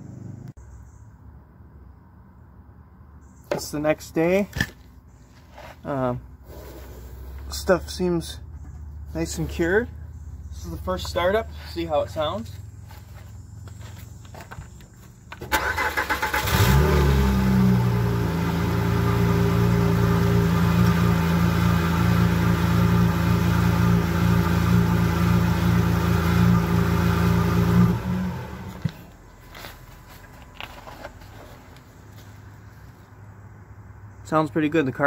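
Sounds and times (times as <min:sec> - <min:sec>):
car engine starting and idling: 0:15.3 - 0:29.2.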